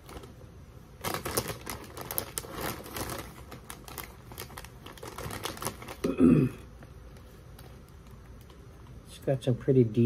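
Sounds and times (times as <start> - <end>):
snack bag crinkling: 1.0 - 6.3.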